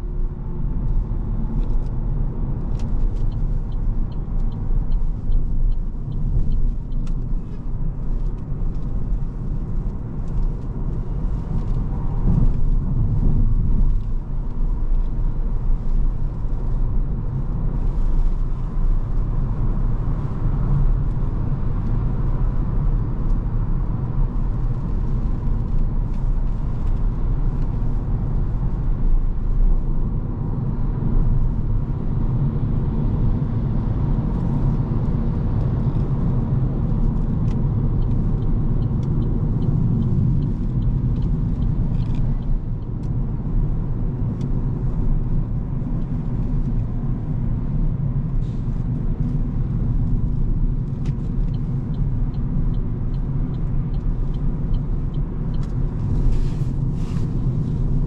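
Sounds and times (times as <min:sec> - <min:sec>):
wind noise inside car: 0:00.0 - 0:58.0
light ticks: 0:02.6 - 0:09.1, 0:37.1 - 0:43.2, 0:50.0 - 0:57.3.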